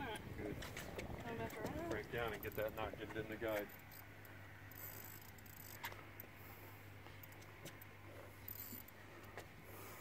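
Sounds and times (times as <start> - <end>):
low steady hum: 0.0 - 10.0
faint ticks: 7.0 - 9.5.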